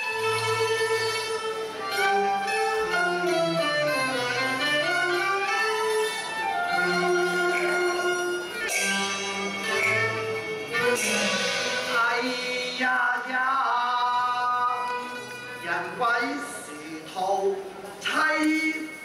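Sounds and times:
bowed strings playing melody: 0.0s - 12.8s
sharp percussion strikes: 0.0s - 15.6s.

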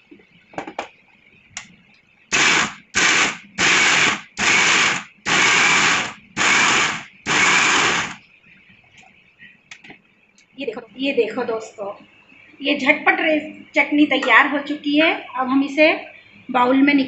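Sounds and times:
mixer grinder pulsing: 2.3s - 8.2s.

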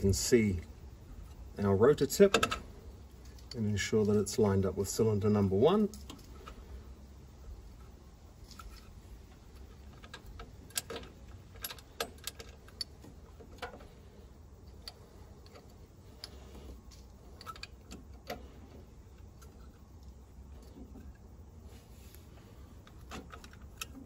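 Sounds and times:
small metal clicks and taps: 22.8s - 24.0s.

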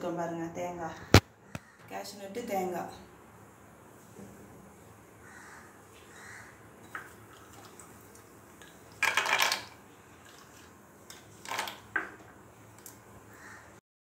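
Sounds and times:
nuts clattering into a pan: 9.0s - 9.8s, 11.5s - 12.1s.

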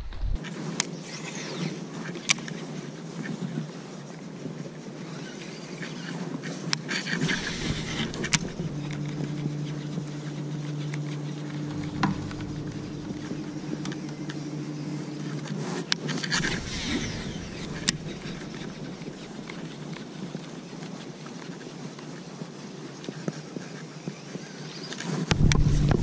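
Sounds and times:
fishing reel clicks and whir: 6.9s - 12.4s
electric motor hum: 7.1s - 20.4s, 25.3s - 26.0s.

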